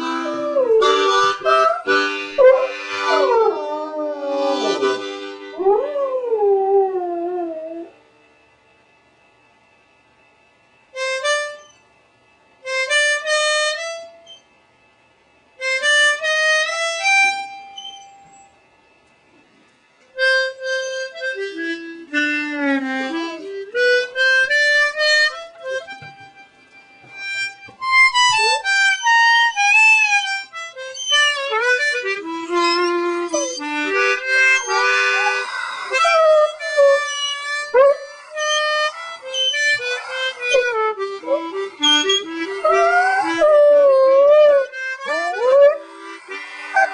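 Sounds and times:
harmonica playing: 0.0s - 6.2s, 11.0s - 11.8s, 12.7s - 14.4s, 15.6s - 18.0s, 20.2s - 46.9s
dog howling: 0.1s - 5.0s, 5.6s - 8.0s, 28.3s - 46.9s.

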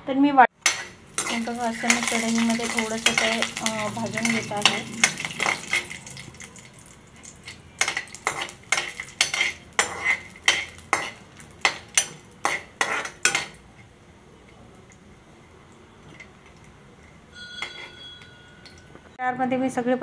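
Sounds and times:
metal spatula scraping metal pan: 0.6s - 13.6s, 17.3s - 19.0s.

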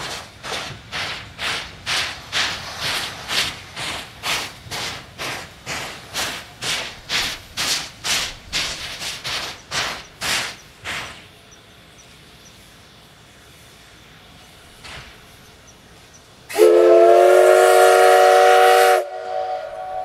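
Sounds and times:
faint steam hiss: 0.0s - 20.0s
steam locomotive chuffing: 0.0s - 20.0s.

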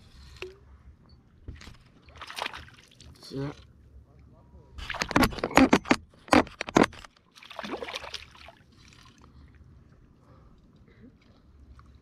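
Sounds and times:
water lapping: 1.9s - 3.3s, 7.3s - 12.0s
fish splashing in water: 2.1s - 3.2s, 7.3s - 9.2s.

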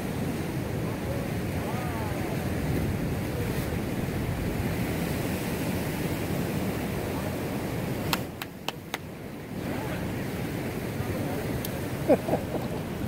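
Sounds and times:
surf on rocky shore: 0.0s - 13.0s.

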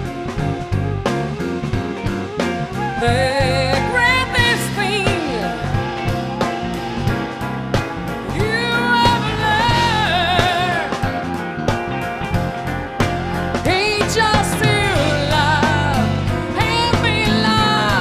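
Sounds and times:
live jazz band: 0.0s - 18.0s
woman singing long wavering notes: 3.0s - 7.1s, 8.3s - 11.0s, 13.6s - 18.0s.

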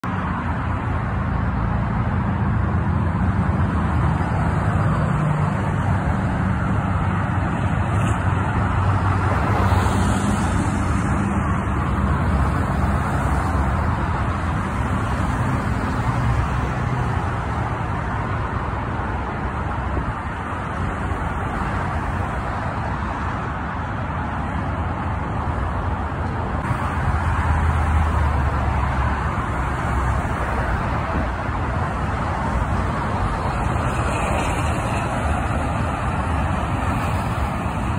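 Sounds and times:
highway traffic passing: 0.0s - 37.9s
truck passing close: 0.0s - 37.9s.

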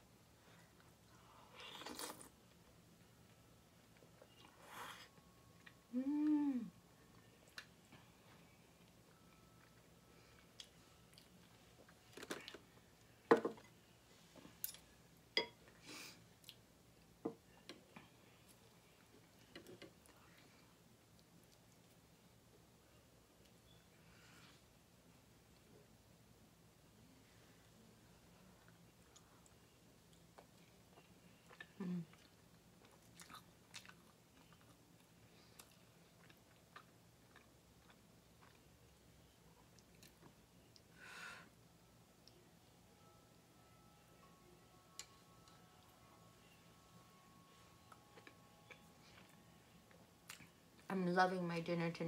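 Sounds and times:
soft eating sounds: 0.0s - 51.0s
chewing soft bread: 17.5s - 22.7s, 27.6s - 40.9s.

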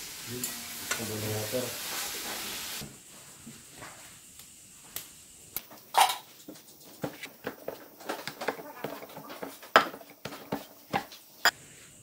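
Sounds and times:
dough scraping against bowl: 6.8s - 11.2s
whisk stirring in metal bowl: 6.9s - 11.2s.

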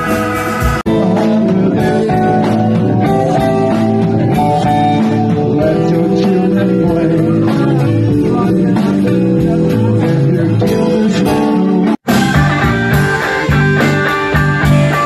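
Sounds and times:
drums beating: 0.0s - 15.0s
guitar: 0.0s - 15.0s
keyboard: 0.0s - 15.0s.

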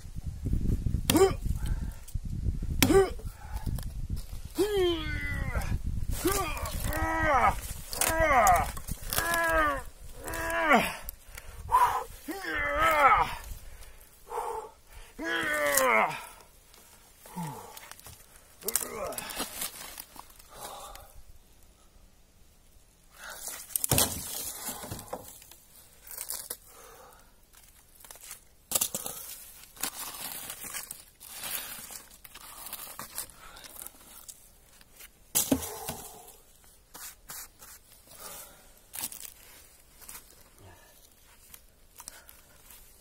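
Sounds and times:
rotten wood cracking and tearing: 2.8s - 14.0s, 15.2s - 21.1s, 23.2s - 26.9s, 27.5s - 36.4s, 38.9s - 43.0s.

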